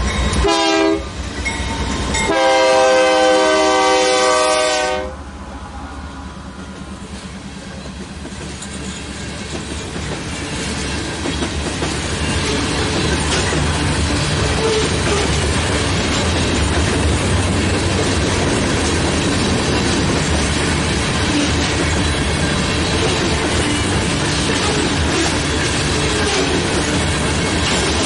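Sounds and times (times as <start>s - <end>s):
locomotive horn blast: 0.4s - 1.2s, 2.2s - 5.3s
train wheels clicking over rail joints: 6.4s - 28.0s.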